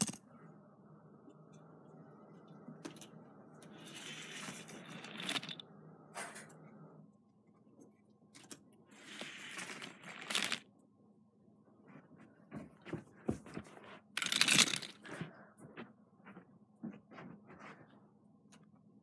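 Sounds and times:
toy car rolling down track: 3.9s - 5.6s.

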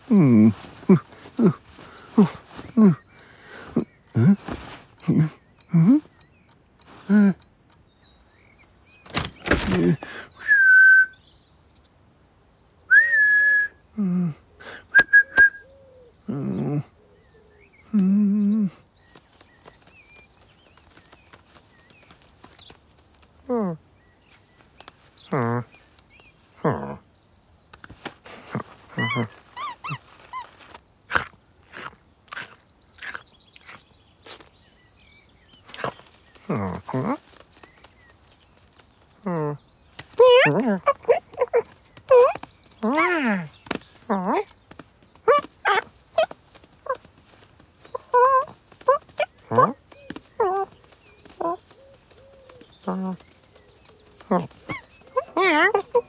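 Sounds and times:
grunting voice: 0.0s - 3.1s, 16.3s - 17.0s, 26.6s - 27.0s
cloth rustling: 4.4s - 5.0s
man whistling: 10.4s - 11.2s, 12.9s - 13.8s, 14.9s - 15.6s
short squeaky chirps: 54.3s - 56.0s.

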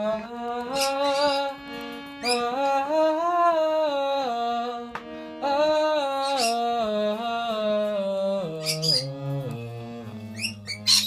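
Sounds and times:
harmonium playing chords: 0.0s - 11.0s
high squeaks: 0.7s - 1.6s, 2.2s - 2.6s, 6.2s - 6.7s, 8.6s - 9.2s, 10.3s - 11.0s.

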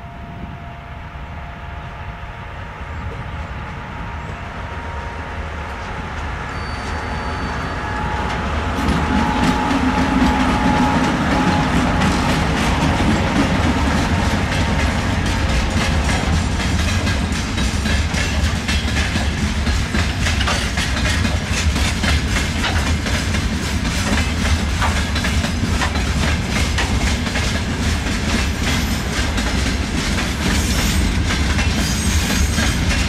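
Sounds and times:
diesel locomotive engine rumble: 0.0s - 33.0s
train wheels clacking over rail joints: 7.9s - 33.0s.

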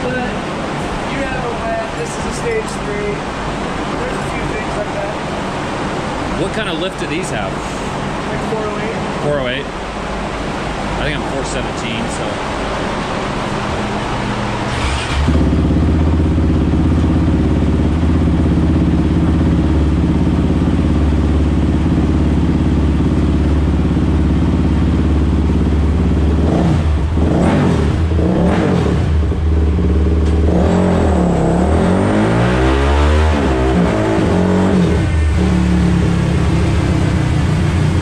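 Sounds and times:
quad bike engine revving: 14.7s - 20.8s, 23.5s - 38.0s.

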